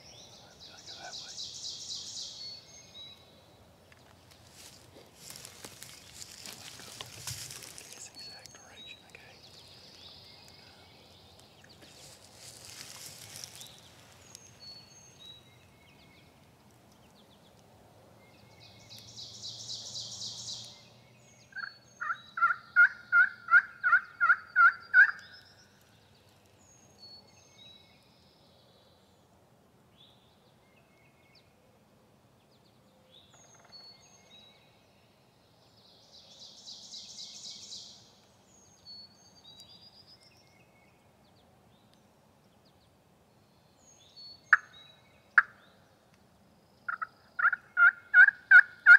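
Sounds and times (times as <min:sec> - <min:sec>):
songbird chirps: 0:00.0 - 0:48.9
turkey yelping: 0:47.0 - 0:48.9.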